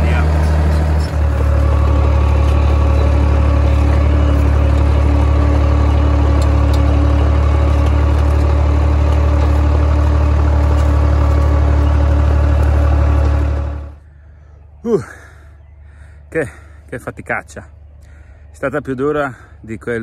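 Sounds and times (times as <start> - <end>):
tractor engine running under load: 0.0 - 15.0.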